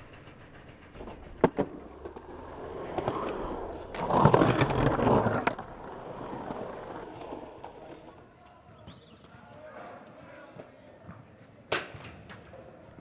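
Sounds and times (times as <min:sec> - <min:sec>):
skateboard wheels rolling: 0:00.8 - 0:09.0
skateboard clacks: 0:00.9 - 0:09.0, 0:10.2 - 0:13.0
skateboard scraping ramp lip: 0:01.0 - 0:08.2.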